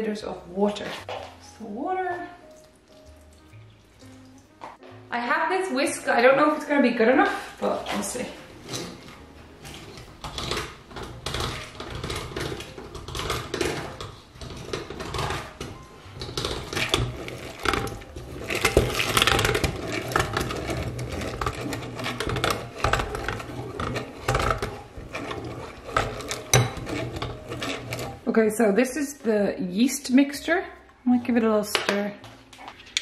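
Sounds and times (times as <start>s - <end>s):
egg beater whirring and rattling: 10.2s - 28.3s.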